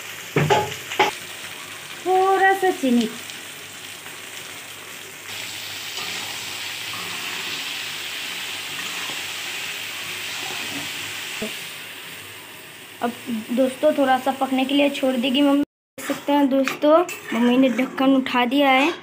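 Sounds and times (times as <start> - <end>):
vegetables sizzling in oil: 0.0 - 16.6
spatula stirring: 16.0 - 18.4.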